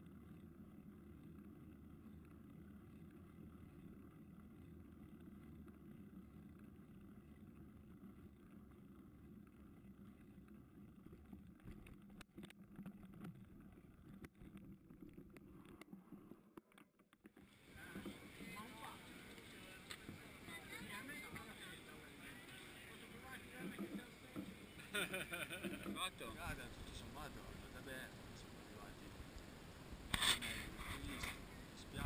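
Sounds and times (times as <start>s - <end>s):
faint low rumble: 0.0s - 16.6s.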